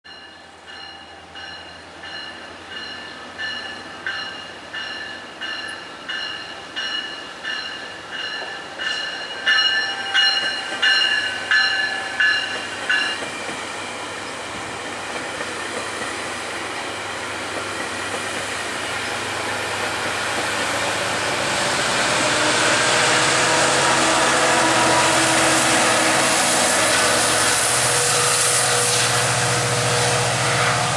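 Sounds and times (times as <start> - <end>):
train bell ringing: 0.1 - 13.3
train coaches rolling past: 0.1 - 30.9
train wheel noise: 0.2 - 30.9
diesel locomotive engine hum: 0.3 - 30.9.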